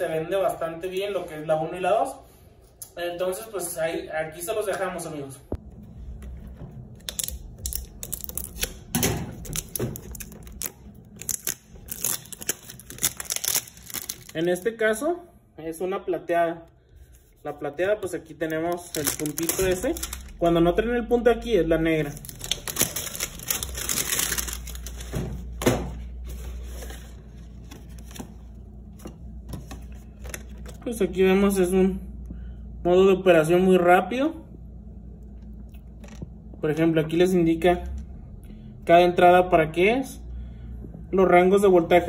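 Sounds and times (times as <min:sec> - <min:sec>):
plastic shrink-wrap crinkling and tearing: 0:07.0 - 0:14.7, 0:18.4 - 0:20.5, 0:22.0 - 0:25.1.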